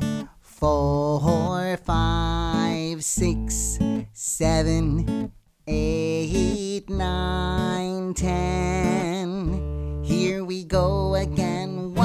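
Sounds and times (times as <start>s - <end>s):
strummed acoustic guitar: 0.0s - 12.0s.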